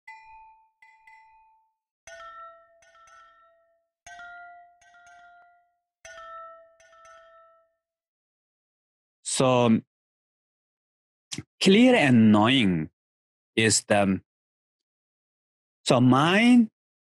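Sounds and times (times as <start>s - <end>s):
bell-like mallet notes: 0.0s - 8.0s.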